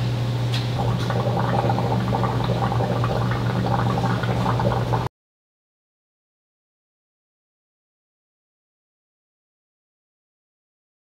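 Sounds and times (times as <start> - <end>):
liquid bubbling and gurgling: 0.8 - 5.1
low hum: 0.8 - 5.1.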